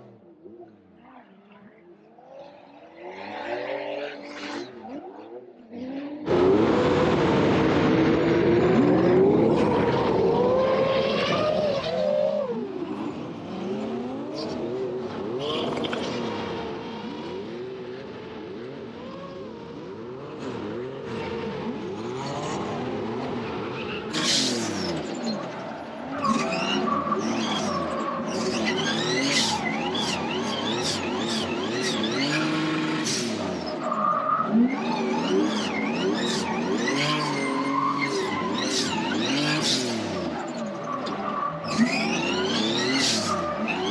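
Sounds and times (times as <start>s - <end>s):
car engine revving: 5.7s - 43.9s
tyres squealing and skidding: 8.6s - 17.7s, 18.6s - 43.9s.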